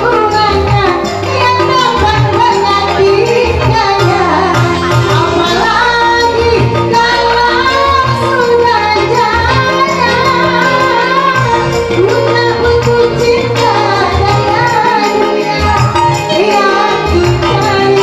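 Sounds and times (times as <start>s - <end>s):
woman singing: 0.0s - 18.0s.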